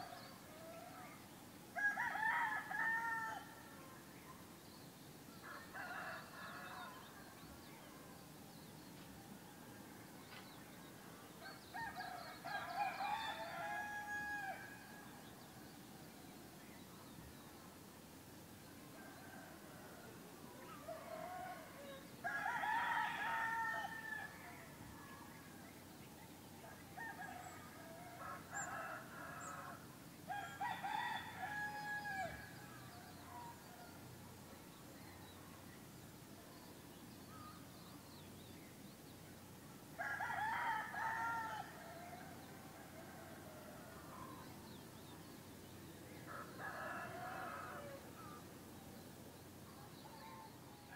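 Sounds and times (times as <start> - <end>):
rooster crowing: 11.8 - 14.7, 27.0 - 32.4, 46.3 - 48.0.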